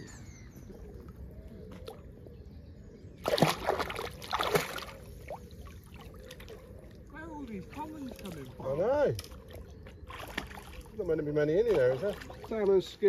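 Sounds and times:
loud splashes in water: 0:03.2 - 0:04.9
water lapping: 0:03.2 - 0:13.0.

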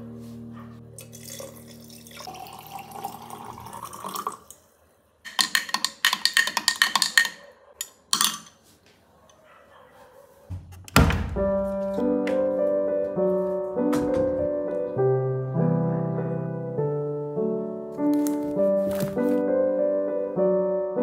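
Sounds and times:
water pouring into glass jar: 0:01.0 - 0:04.6
glass straw clinking in jar: 0:05.3 - 0:08.6.

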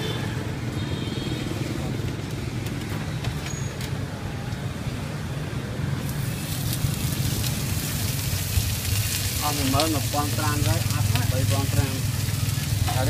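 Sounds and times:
street traffic rumble: 0:00.0 - 0:13.0
wok frying hiss: 0:05.9 - 0:13.0.

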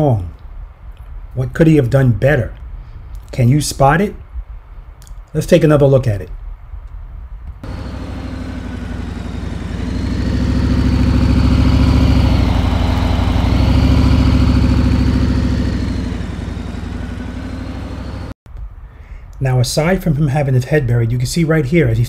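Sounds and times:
motorcycle engine running: 0:07.6 - 0:18.4.

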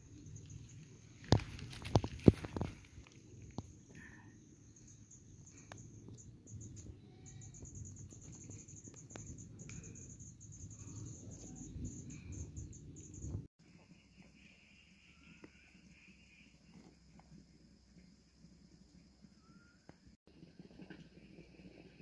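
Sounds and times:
insect trilling: 0:04.3 - 0:13.4.

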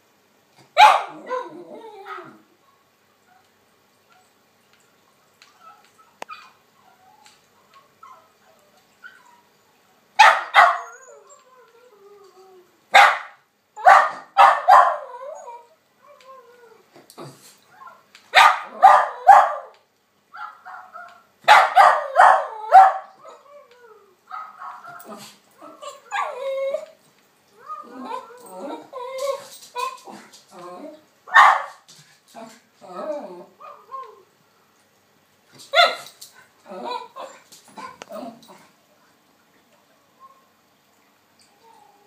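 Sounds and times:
dog barking: 0:00.8 - 0:01.2, 0:10.2 - 0:10.8, 0:13.0 - 0:15.0, 0:18.4 - 0:19.7, 0:20.4 - 0:23.1, 0:31.3 - 0:31.8, 0:35.8 - 0:36.1.

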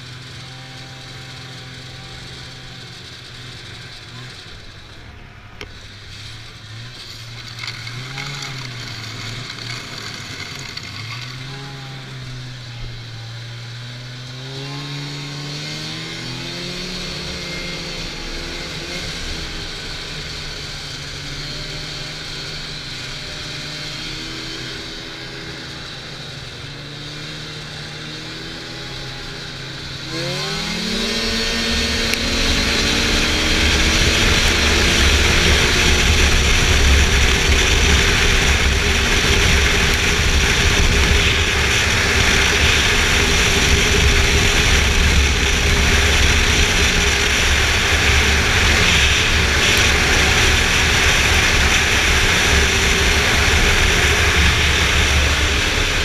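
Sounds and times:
snowmobile engine revving: 0:00.0 - 0:56.0
wind and track rushing: 0:13.9 - 0:56.0.

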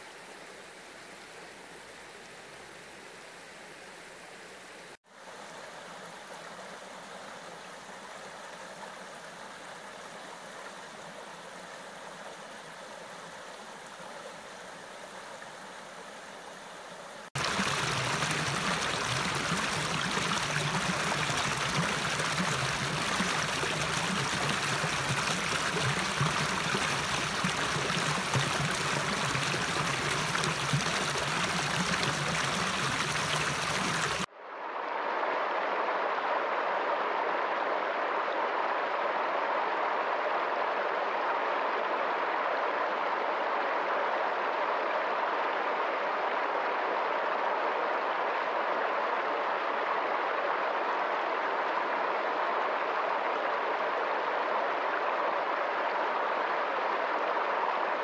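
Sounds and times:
stream flowing over stones: 0:17.3 - 0:34.3
water rushing around rocks: 0:17.4 - 0:34.3.

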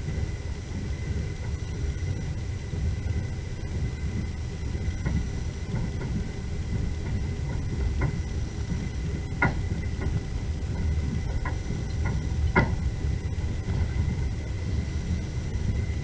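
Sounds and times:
train rumble inside carriage: 0:00.0 - 0:16.0
wheels clicking over rail joints: 0:00.0 - 0:16.0.

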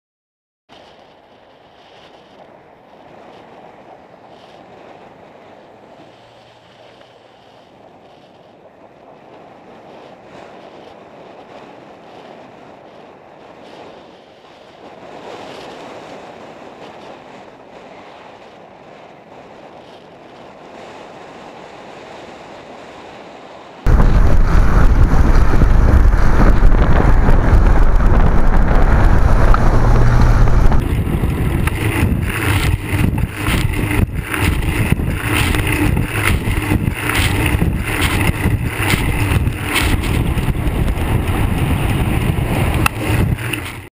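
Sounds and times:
wind buffeting microphone: 0:00.7 - 0:43.9
road and traffic noise: 0:05.1 - 0:08.2, 0:23.8 - 0:43.9.

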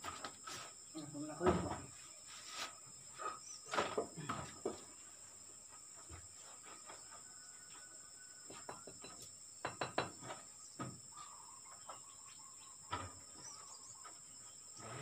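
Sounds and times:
knocks and clatters of bricklaying: 0:00.0 - 0:00.8, 0:03.1 - 0:05.0, 0:05.7 - 0:11.1
high insect drone: 0:00.0 - 0:15.0
bird chirping: 0:10.2 - 0:15.0.

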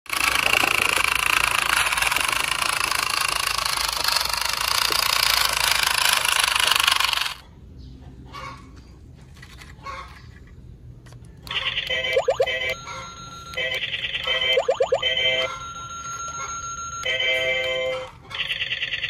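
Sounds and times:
toy truck motor whirring: 0:00.1 - 0:07.4.

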